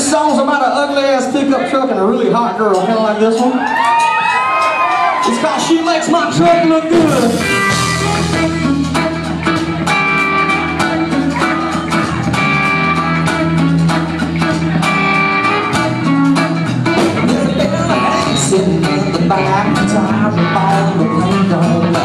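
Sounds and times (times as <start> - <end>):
live band with guitars: 0.0 - 22.0.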